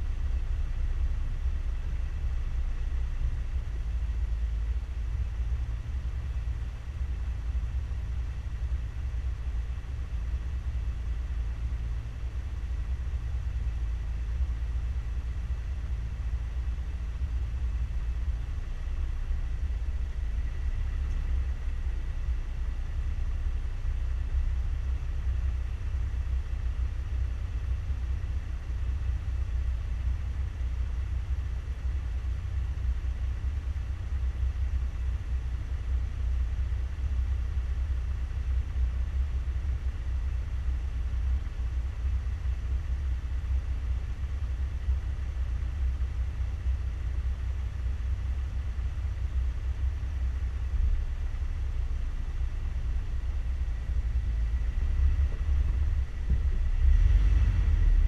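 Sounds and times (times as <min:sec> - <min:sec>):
vehicle engine idling: 0:00.0 - 0:58.0.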